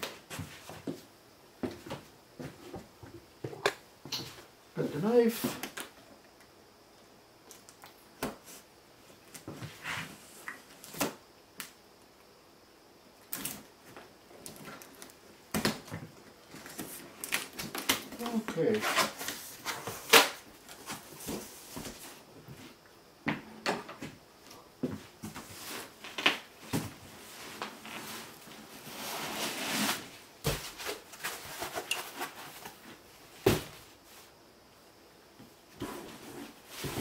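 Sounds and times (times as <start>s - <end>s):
cardboard rustling scrape: 27.2s - 32.8s
cardboard box knocks and thumps: 33.4s - 33.8s.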